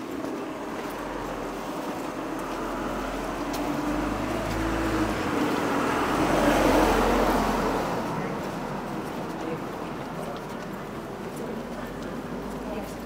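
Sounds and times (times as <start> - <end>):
car driving past: 0.3 - 12.9.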